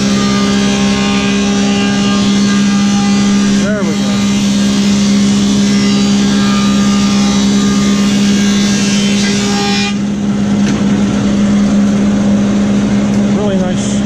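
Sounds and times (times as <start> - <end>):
planer cutting hardwood board: 0.0 - 11.2
planer motor hum: 0.0 - 14.0.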